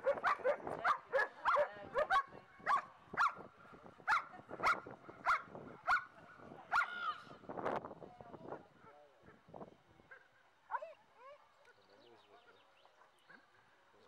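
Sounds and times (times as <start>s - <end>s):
dog barking: 0.0s - 3.4s, 4.1s - 6.1s.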